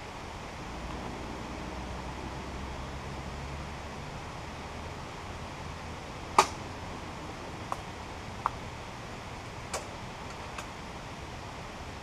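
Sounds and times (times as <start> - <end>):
steady background hiss: 0.0 - 12.0.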